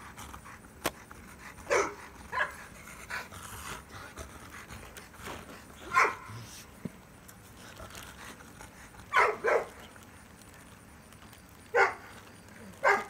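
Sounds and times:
dog barks: 1.7 - 2.6, 5.9 - 6.4, 9.1 - 9.8, 11.7 - 12.1, 12.8 - 13.0.

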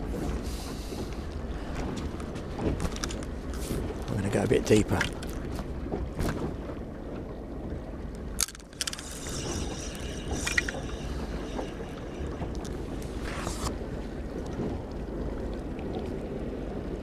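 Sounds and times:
wind on microphone: 8.7 - 15.4.

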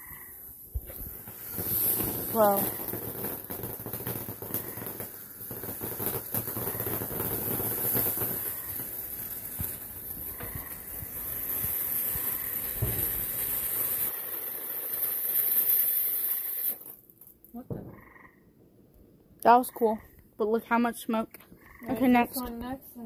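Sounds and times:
firework spraying hiss: 0.0 - 17.1
small crackles and pops: 0.7 - 18.1.

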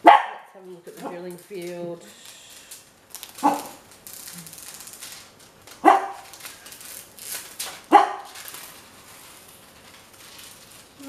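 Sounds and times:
dog barking: 0.0 - 0.5, 3.4 - 3.8, 5.8 - 6.2, 7.9 - 8.3.

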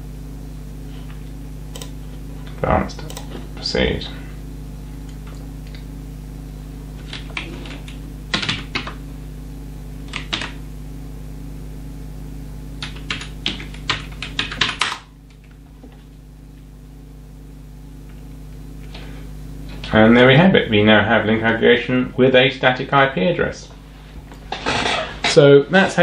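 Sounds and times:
low hum: 0.0 - 25.4
typing on computer keyboard: 8.3 - 8.9, 10.1 - 10.6, 12.8 - 15.0.

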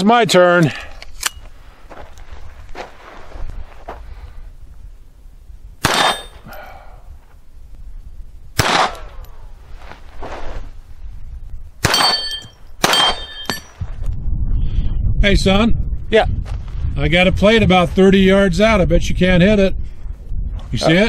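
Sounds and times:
pistol shots: 5.8 - 6.4, 8.6 - 9.2, 11.8 - 13.6
steel plate target clanging: 5.9 - 6.5, 11.8 - 13.8.

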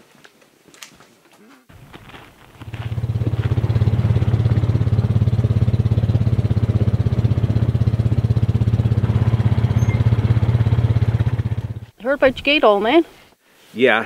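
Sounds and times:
atv engine running: 1.7 - 11.9.

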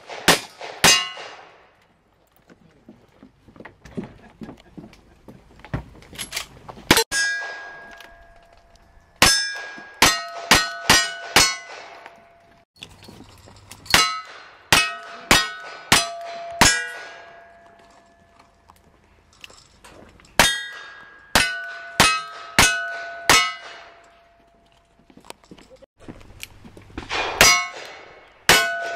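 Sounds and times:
bullet hitting steel target: 0.1 - 1.6, 6.9 - 8.6, 9.2 - 12.3, 13.9 - 18.2, 20.4 - 24.1, 27.0 - 28.9.

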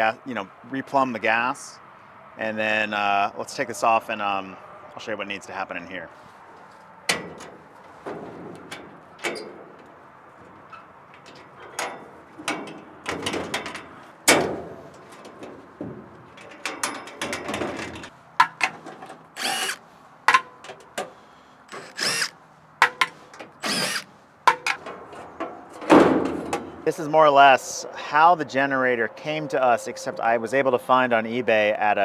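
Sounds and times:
metallic clicks and knocks: 7.1 - 19.3, 22.8 - 23.6, 24.4 - 26.8
metal on metal screeching: 19.4 - 19.8.

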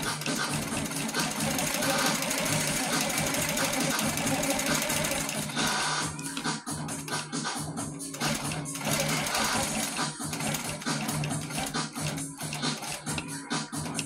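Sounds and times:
quilting machine stitching: 0.0 - 14.0.

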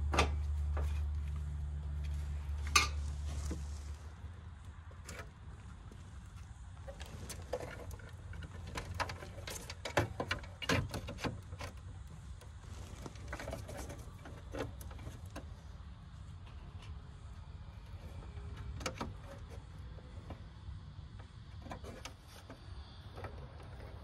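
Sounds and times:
hands clicking and scraping in metal box: 6.8 - 15.5.

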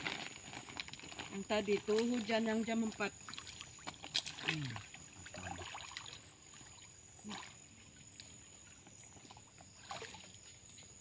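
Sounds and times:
people wading through water: 1.7 - 10.8
sharp splash: 3.2 - 7.6, 8.6 - 10.4.

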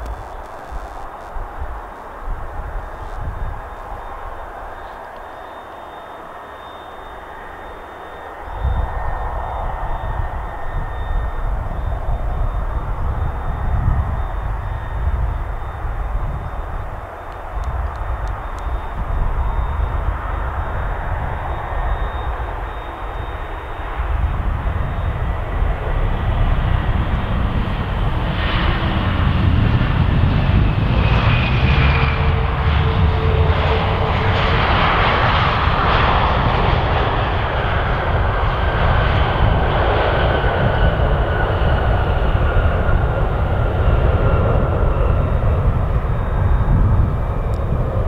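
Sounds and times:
high whines falling in pitch: 0.0 - 25.9
jet engine roar: 0.0 - 48.0.

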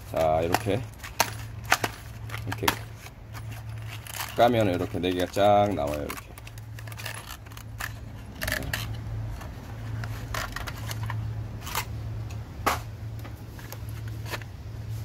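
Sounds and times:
low steady hum: 0.0 - 15.0
metal spark plugs clicking: 0.1 - 12.4.

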